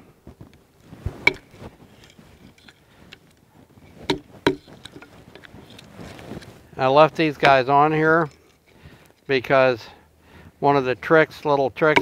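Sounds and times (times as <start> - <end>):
wooden baton striking knife spine: 1.3 - 1.5, 4.1 - 5.1
sharp wooden knocks: 4.1 - 4.7.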